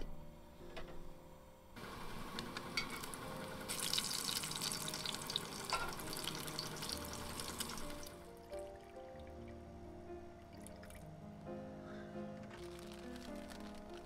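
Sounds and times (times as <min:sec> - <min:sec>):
bacon sizzling in a skillet: 0:03.0 - 0:08.1.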